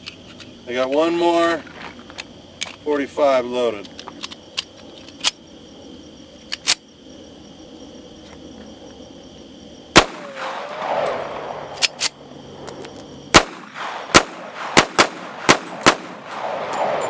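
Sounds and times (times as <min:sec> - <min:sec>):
pistol shots echoing: 0:10.0 - 0:12.0, 0:13.3 - 0:17.0.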